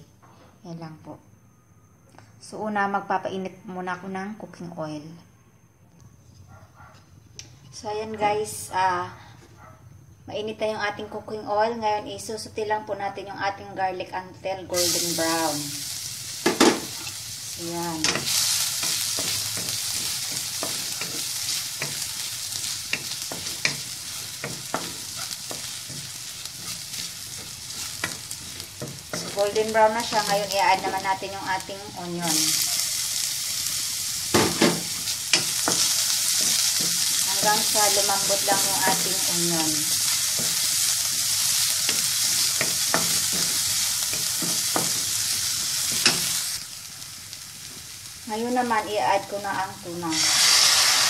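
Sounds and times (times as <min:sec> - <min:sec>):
garlic sizzling in oil: 0:14.7 - 0:51.0
wooden spatula scraping wok: 0:17.9 - 0:33.8, 0:34.4 - 0:46.6.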